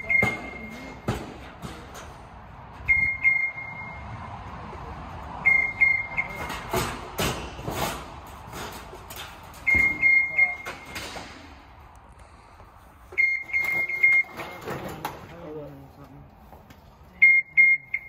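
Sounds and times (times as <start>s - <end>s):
scissor lift alarm beeping: 0.0s - 1.0s, 2.8s - 4.1s, 5.4s - 6.6s, 9.6s - 11.0s, 13.1s - 14.7s, 17.2s - 18.0s.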